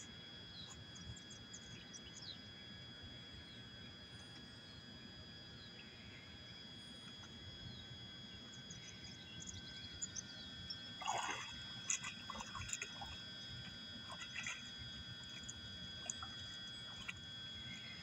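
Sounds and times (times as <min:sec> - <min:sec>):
dog swimming and wading: 0:10.7 - 0:18.0
water splashes and drips: 0:11.0 - 0:13.2, 0:14.1 - 0:17.2.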